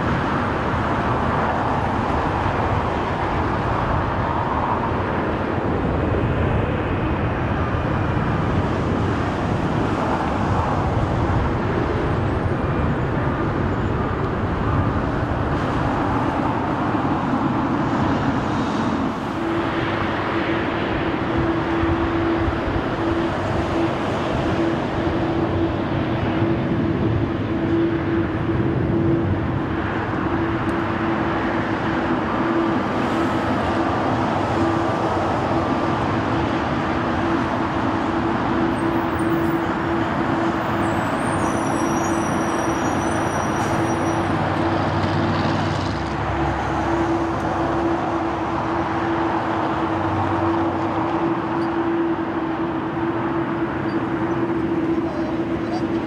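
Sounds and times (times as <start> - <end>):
jet engines rumbling: 0.0 - 56.0
steady droning tone: 18.9 - 44.8, 45.9 - 56.0.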